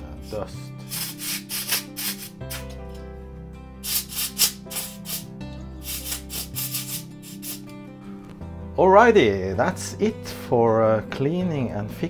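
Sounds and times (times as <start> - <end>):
background music: 0.0 - 12.0
compressed air hissing: 0.8 - 2.8, 3.8 - 7.7.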